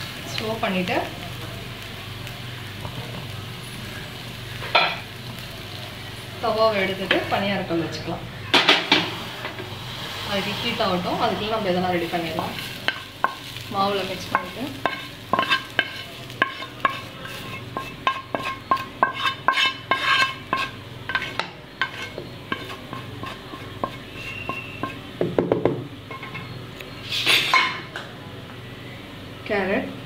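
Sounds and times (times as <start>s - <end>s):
spatula scraping frying pan: 8.8s - 25.1s
spatula tapping frying pan: 14.3s - 26.3s.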